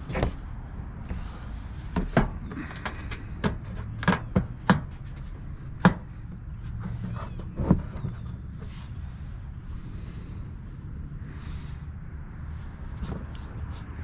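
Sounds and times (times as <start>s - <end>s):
plastic liner knocking and snapping: 2.0s - 5.2s.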